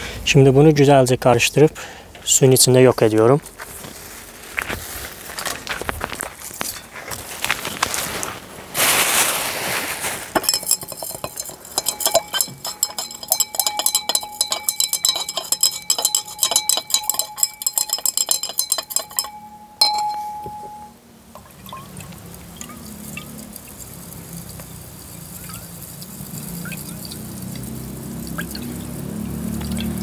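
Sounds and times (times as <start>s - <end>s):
glass rod clinking in beaker: 10.4s - 22.0s.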